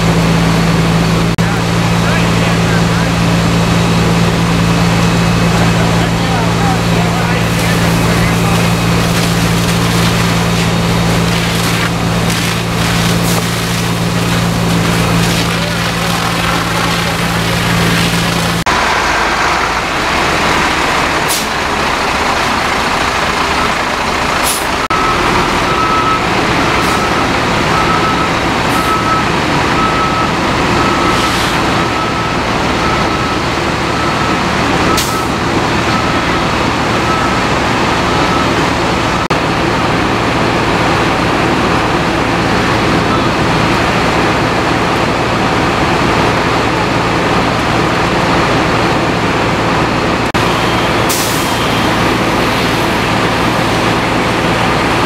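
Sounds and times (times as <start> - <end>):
truck reversing alarm beeps: 0.0 - 18.6, 23.4 - 39.4, 42.7 - 44.0, 50.3 - 55.0
diesel truck engines droning: 0.0 - 55.0.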